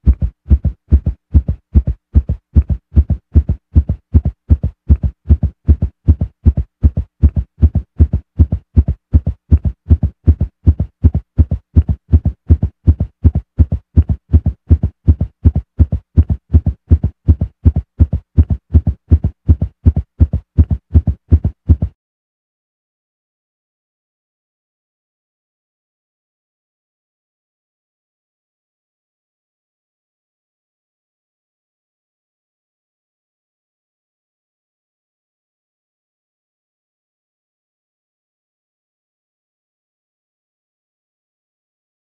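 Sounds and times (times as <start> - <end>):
heartbeat thumps: 0.0 - 22.0.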